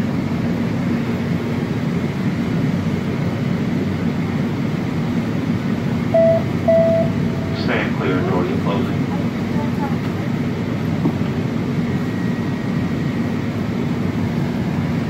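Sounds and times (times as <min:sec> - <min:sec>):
ventilation hum in tram car: 0:00.0 - 0:15.0
short electronic beep: 0:06.2 - 0:07.7.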